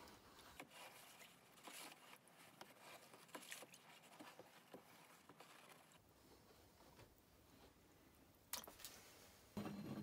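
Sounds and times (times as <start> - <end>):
hand swishing water in a tub: 0.0 - 6.4.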